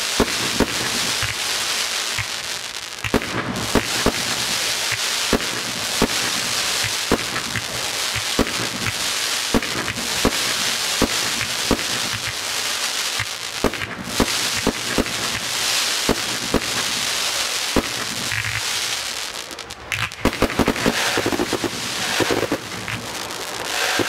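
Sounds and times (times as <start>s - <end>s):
fireworks bangs: 0.0s - 24.0s
fireworks crackling hiss: 0.0s - 24.0s.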